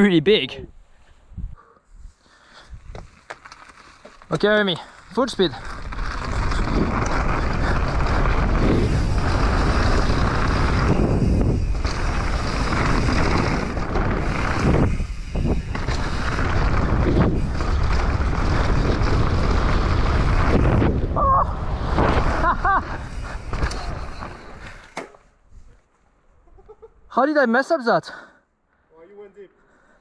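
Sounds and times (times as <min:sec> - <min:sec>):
bike tyres rumbling on dirt: 0:02.6 - 0:25.0
wind buffeting microphone: 0:05.4 - 0:24.5.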